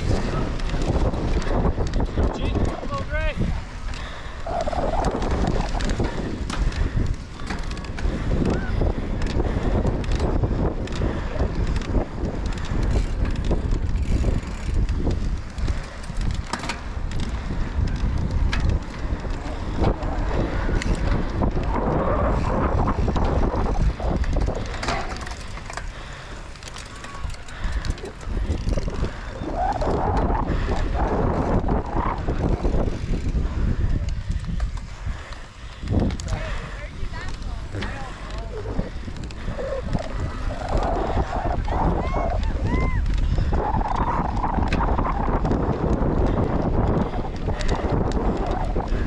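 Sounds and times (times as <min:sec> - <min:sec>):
bike frame rattling and knocking: 0:00.0 - 0:36.6
wind buffeting microphone: 0:00.0 - 0:49.0.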